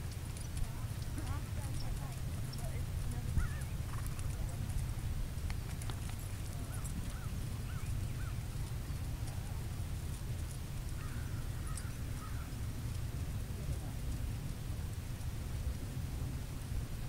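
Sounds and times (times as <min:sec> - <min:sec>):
wind on microphone: 0:00.0 - 0:17.0
bird calling: 0:01.3 - 0:04.4, 0:06.4 - 0:09.1, 0:11.0 - 0:12.6.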